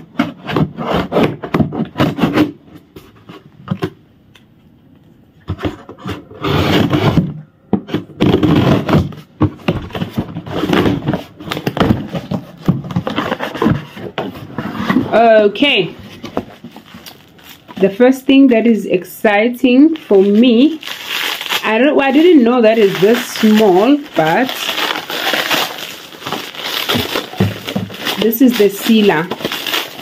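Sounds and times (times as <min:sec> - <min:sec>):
cardboard box being opened: 0:20.2 - 0:30.0.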